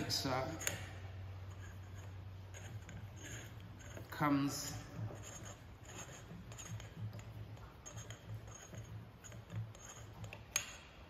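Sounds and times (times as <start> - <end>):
small metallic ticks and clicks: 5.9 - 10.9.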